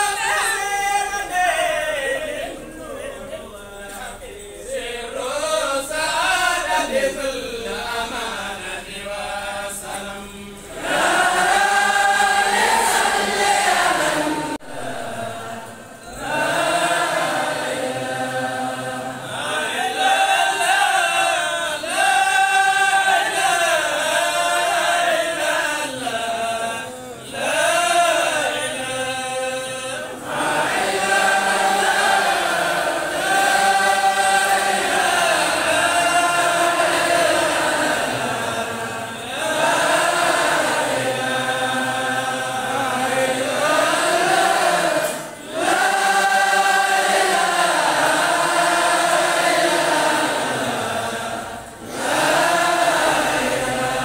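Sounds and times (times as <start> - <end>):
crowd chanting in unison: 0.0 - 54.0.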